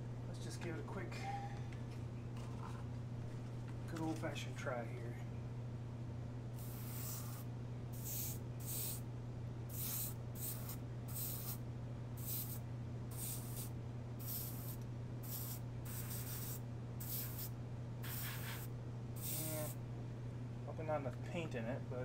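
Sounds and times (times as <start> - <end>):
steady low hum: 0.0 - 22.0
airbrush spraying hiss: 6.6 - 9.0, 9.7 - 11.6, 12.2 - 19.8.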